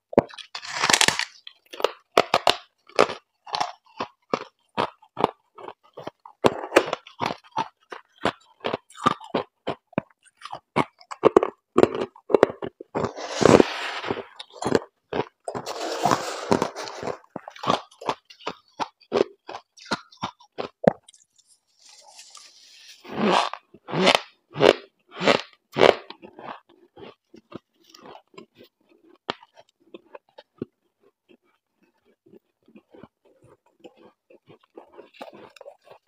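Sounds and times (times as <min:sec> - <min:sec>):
frost crunched by chewing: 0:00.1 - 0:36.0
gloved hand scraping frost: 0:13.0 - 0:14.8, 0:15.5 - 0:17.8, 0:21.7 - 0:23.5.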